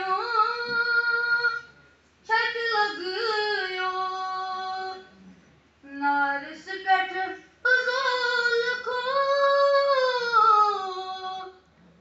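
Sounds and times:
boy singing unaccompanied: 5.8s - 11.6s.

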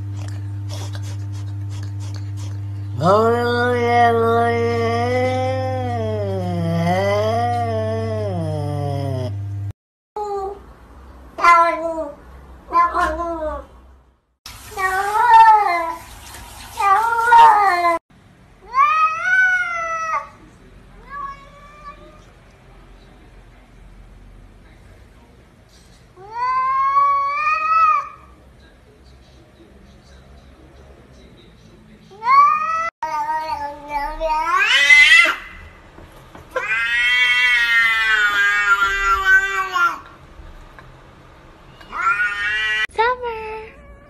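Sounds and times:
cat meowing: 11.4s - 13.7s, 21.0s - 22.3s, 32.2s - 35.6s, 36.5s - 40.1s, 41.7s - 42.9s.

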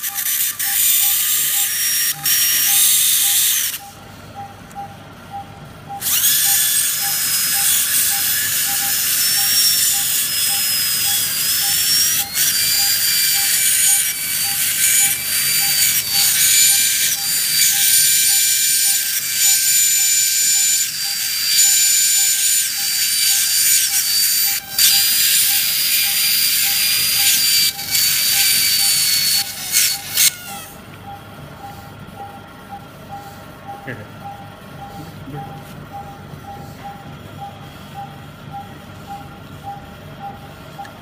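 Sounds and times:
faint regular beep: 0.0s - 1.4s, 2.2s - 8.9s, 31.0s - 41.0s
surgical bone drill whining: 0.0s - 4.0s, 5.9s - 30.9s.

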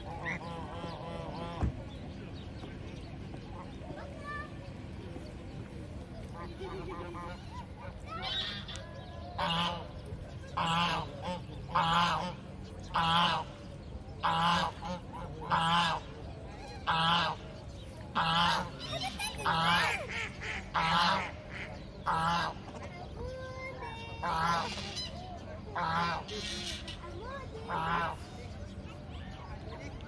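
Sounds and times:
goose honking: 18.1s - 22.6s.

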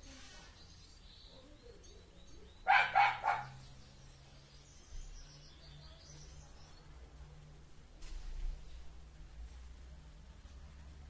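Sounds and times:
dog barking: 2.6s - 3.6s.

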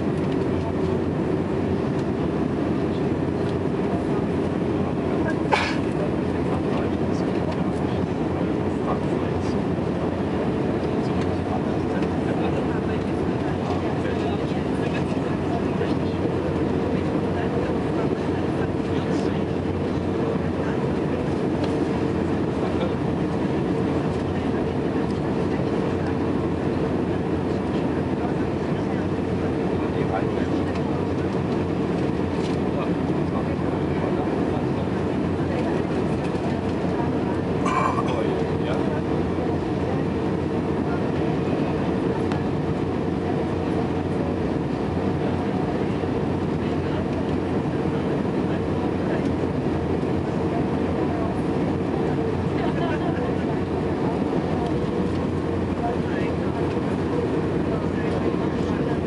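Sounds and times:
airliner engine noise: 0.0s - 59.0s.

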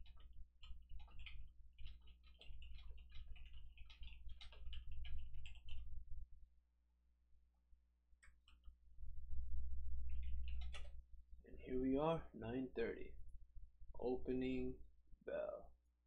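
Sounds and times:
steady low hum: 8.4s - 15.7s.

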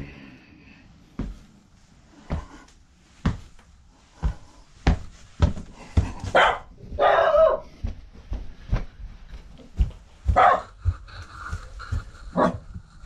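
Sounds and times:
dog barking: 6.3s - 7.7s, 10.3s - 10.8s, 12.4s - 12.6s.

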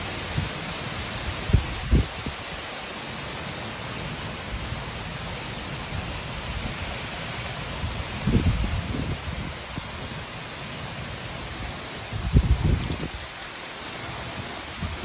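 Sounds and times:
heavy rain pouring: 0.0s - 15.0s
wind buffeting microphone: 1.3s - 2.5s, 7.7s - 10.2s, 12.0s - 15.0s.

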